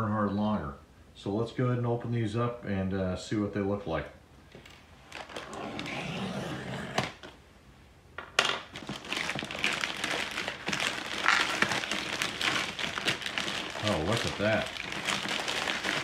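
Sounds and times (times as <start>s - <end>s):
plastic crinkling and rustling: 5.0s - 6.4s, 8.4s - 16.0s
blade slitting plastic mailer: 8.8s - 16.0s.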